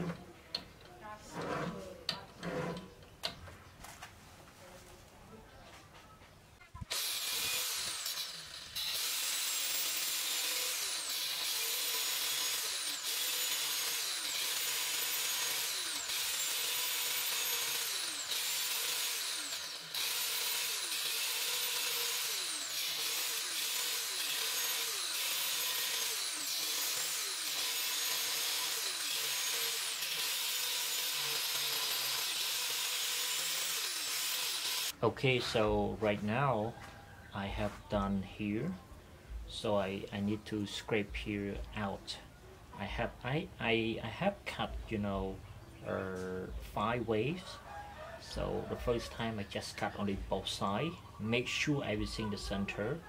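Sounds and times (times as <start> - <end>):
angle grinder cutting steel: 6.8 - 35.0.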